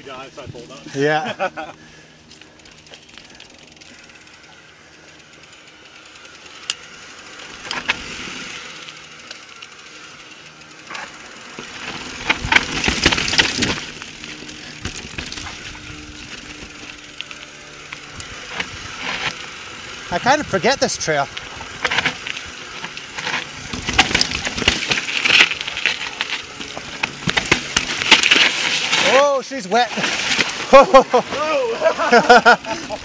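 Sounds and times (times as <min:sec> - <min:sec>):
bike rattling over rough ground: 0:00.0 - 0:33.0
bike knocking: 0:10.6 - 0:19.6, 0:21.4 - 0:29.1
bike tyres rumbling over rock: 0:10.8 - 0:33.0.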